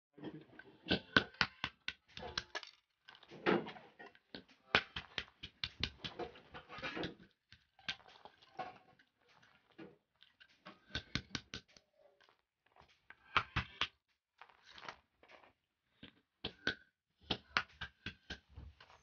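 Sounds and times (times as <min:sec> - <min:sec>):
hammer cracking walnuts on stone: 0:00.9 - 0:03.5, 0:04.1 - 0:06.2, 0:10.8 - 0:11.8.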